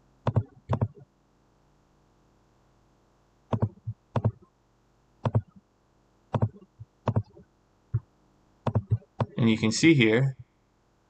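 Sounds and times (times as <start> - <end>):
computer mouse clicking: 0.2 - 1.0, 3.5 - 4.4, 5.2 - 5.6, 6.3 - 7.4, 8.6 - 9.4.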